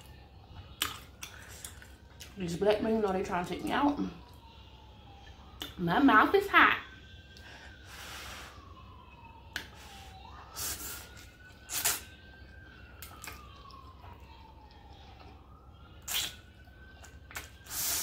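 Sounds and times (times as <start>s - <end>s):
faint siren wailing: 0.0s - 18.0s
noodles being slurped: 10.6s - 12.2s, 16.1s - 16.4s, 17.4s - 18.0s.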